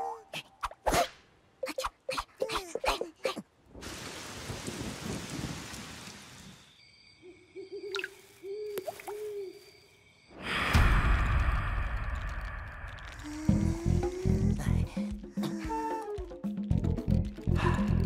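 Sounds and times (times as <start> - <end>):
owl hooting: 7.6 - 9.7.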